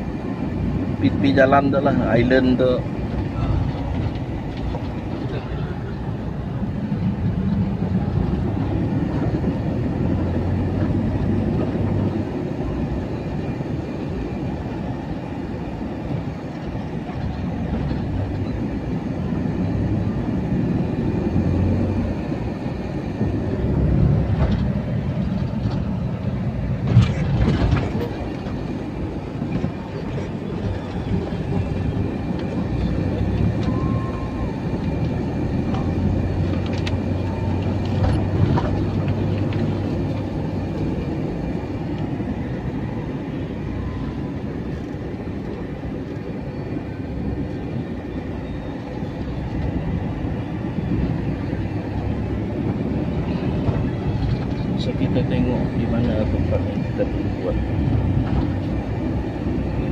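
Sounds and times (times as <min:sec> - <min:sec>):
vehicle engine and road drone: 0:00.0 - 0:59.9
body knocks and rattles: 0:26.8 - 0:28.6.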